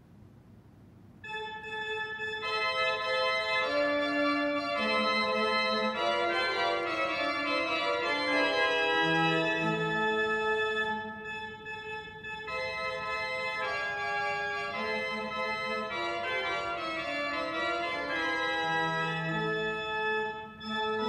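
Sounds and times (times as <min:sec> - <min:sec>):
church organ chords: 0:01.2 - 0:21.0.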